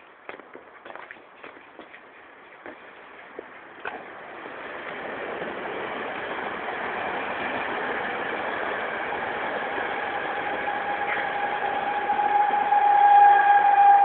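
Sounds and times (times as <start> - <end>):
steady whine: 3.9 - 14.0.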